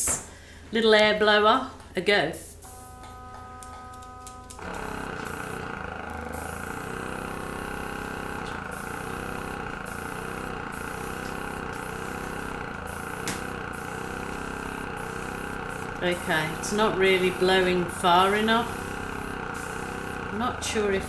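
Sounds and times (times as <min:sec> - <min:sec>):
airbrush compressor running: 0:02.4 - 0:21.0
air hissing from airbrush: 0:04.6 - 0:20.5.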